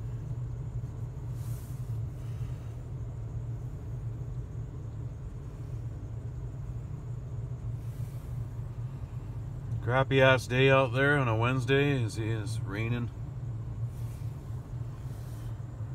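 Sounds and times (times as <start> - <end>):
engine idling: 0.0 - 15.9.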